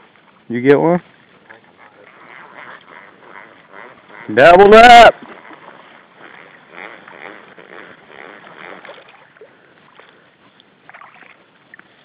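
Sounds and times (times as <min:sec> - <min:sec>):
fish splashing in water: 0:05.1 - 0:12.0.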